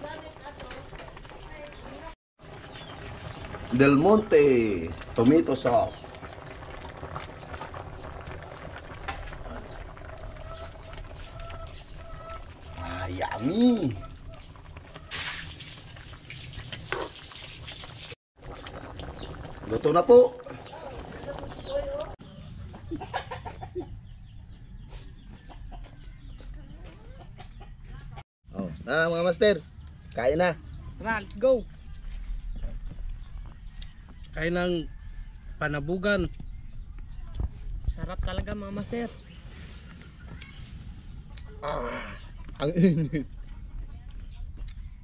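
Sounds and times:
broth bubbling with small pops: 0.5s - 22.2s
chickens clucking: 9.7s - 15.2s, 20.6s - 28.2s.

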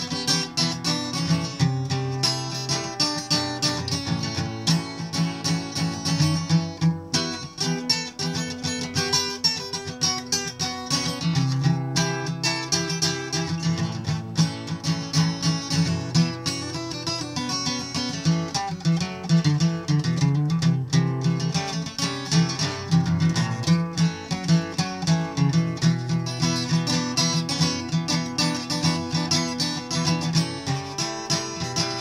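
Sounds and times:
acoustic guitar picked and strummed: 0.0s - 32.0s.

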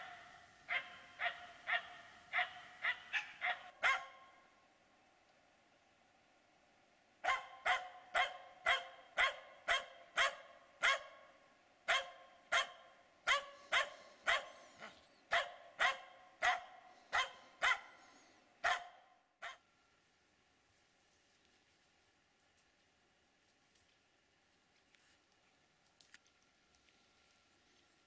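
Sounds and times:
dog barking rapidly: 0.0s - 4.3s, 7.2s - 11.2s, 11.9s - 18.0s, 18.6s - 19.6s.

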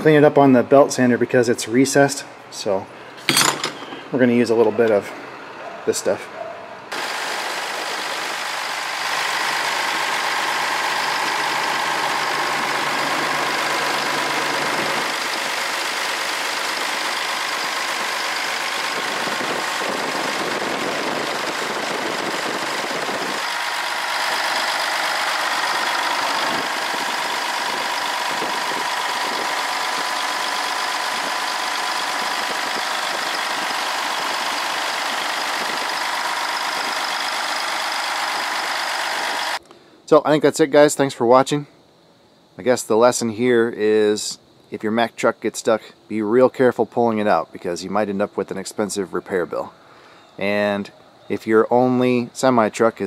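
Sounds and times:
diesel truck engine idling: 4.2s - 39.6s.

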